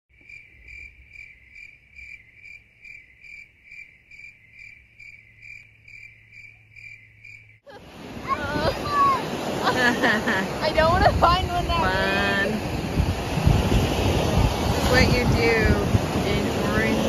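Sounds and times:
cricket chirping: 0:00.1 - 0:07.7.

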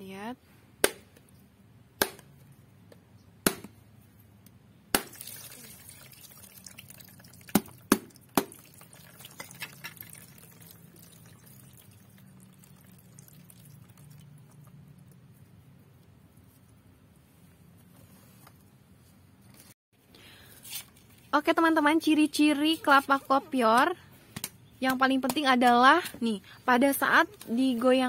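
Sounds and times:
water splashing and dripping into tub: 0:05.0 - 0:14.7.

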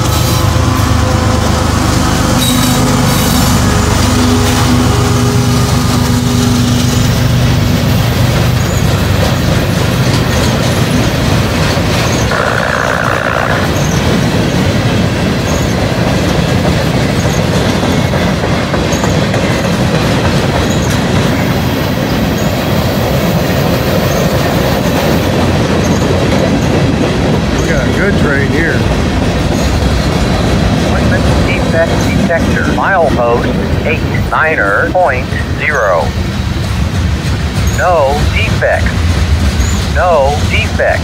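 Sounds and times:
diesel locomotive engine: 0:00.0 - 0:41.0
train wheels rumbling on rail: 0:00.0 - 0:41.0
clickety-clack of wheels: 0:07.8 - 0:12.4, 0:13.6 - 0:32.5
wheel squeal: 0:08.6 - 0:08.9, 0:12.0 - 0:14.1, 0:15.5 - 0:15.8.

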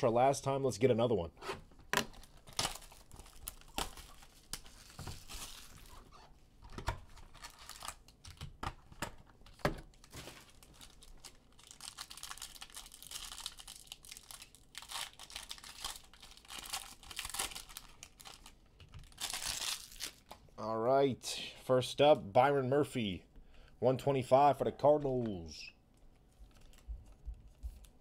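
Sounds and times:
foil wrapper crinkling: 0:02.0 - 0:06.2, 0:07.0 - 0:08.5, 0:09.4 - 0:20.4.

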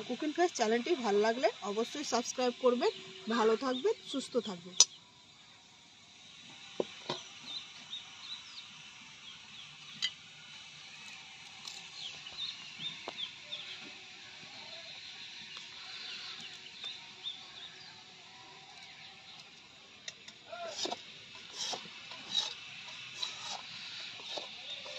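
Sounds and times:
birds chirping: 0:11.8 - 0:18.1.

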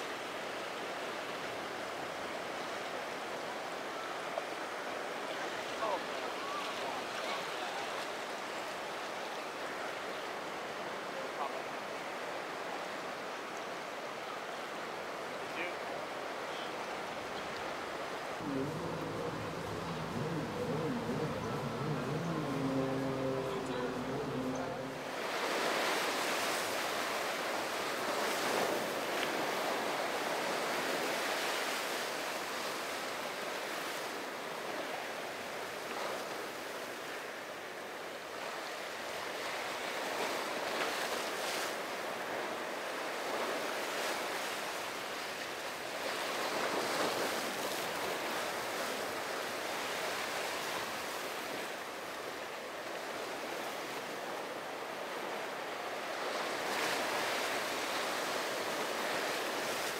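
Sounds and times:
wind on microphone: 0:18.4 - 0:25.6
ocean waves breaking: 0:18.4 - 0:31.0.

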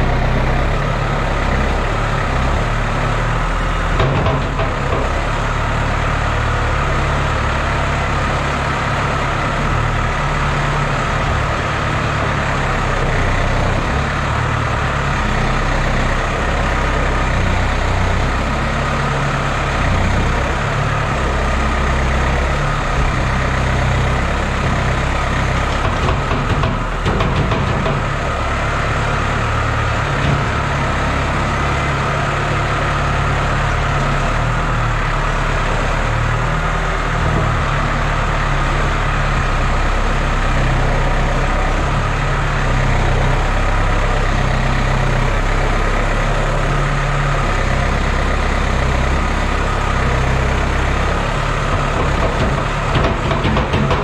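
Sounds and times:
tractor diesel engine running: 0:00.0 - 0:54.0
clatter of knocks: 0:03.9 - 0:05.3, 0:24.6 - 0:28.7, 0:51.6 - 0:54.0.

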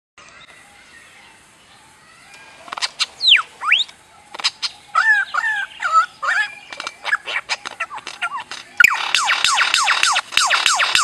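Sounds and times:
lyrebird singing: 0:00.2 - 0:11.0
sharp bird clicks: 0:02.3 - 0:05.1, 0:06.2 - 0:11.0.

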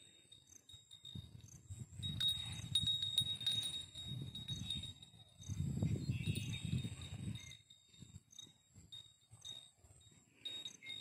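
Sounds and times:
light metallic tinkling: 0:00.0 - 0:11.0
wind buffeting microphone: 0:01.0 - 0:09.6.

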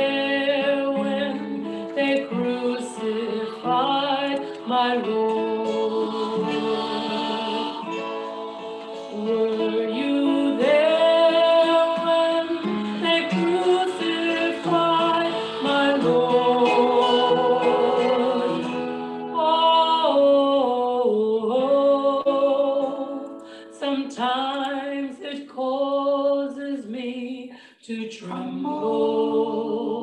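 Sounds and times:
person singing with vibrato: 0:00.0 - 0:30.0
instrumental accompaniment: 0:01.0 - 0:19.5.

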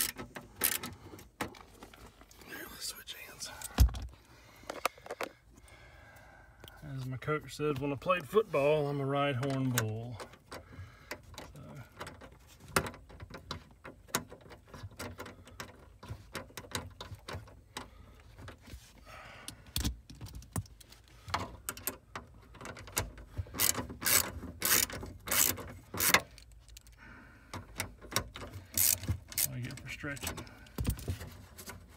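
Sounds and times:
socket ratchet clicking: 0:23.6 - 0:27.0, 0:28.1 - 0:29.5.

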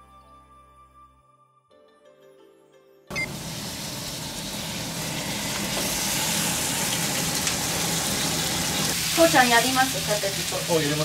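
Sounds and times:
oil sizzling in a frying pan: 0:03.2 - 0:11.0.

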